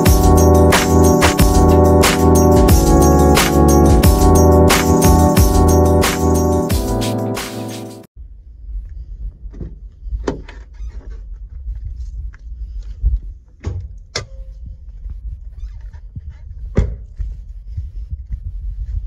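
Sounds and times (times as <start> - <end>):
low rumble on microphone: 8.2 - 19.0.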